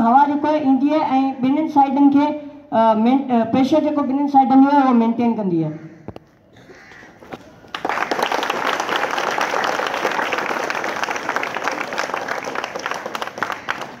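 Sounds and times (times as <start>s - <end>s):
crowd applauding: 7.6s - 14.0s.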